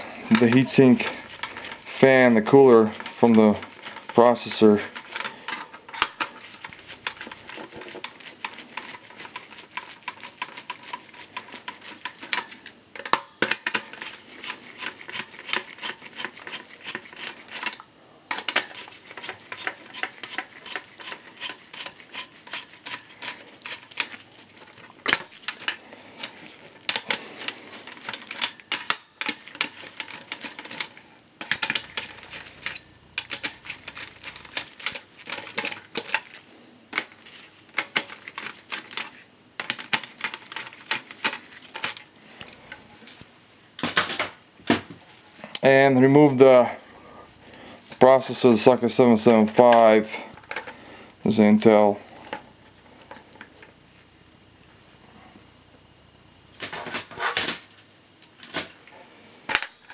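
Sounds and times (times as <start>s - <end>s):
screwdriver clicking and rattling: 0.3s - 36.4s.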